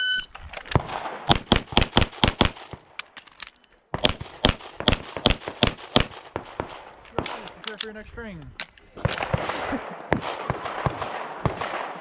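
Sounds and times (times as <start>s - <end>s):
pistol shots: 0.7s - 3.0s, 3.9s - 7.7s, 9.0s - 12.0s.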